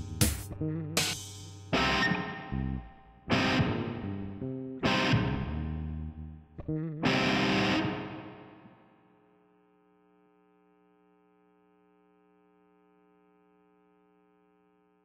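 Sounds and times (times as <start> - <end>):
distorted electric guitar: 0.0 - 9.3.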